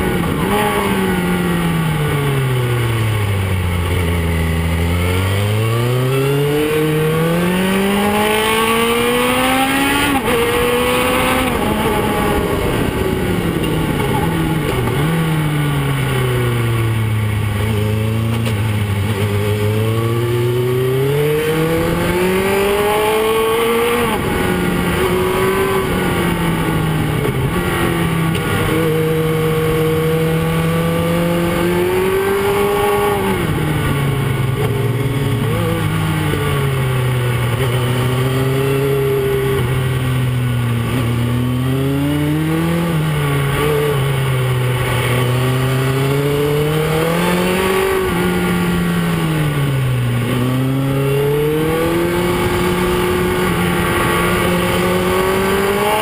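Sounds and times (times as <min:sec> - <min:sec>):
motorcycle engine accelerating: 0:00.0 - 0:56.0
wind noise: 0:06.8 - 0:19.3.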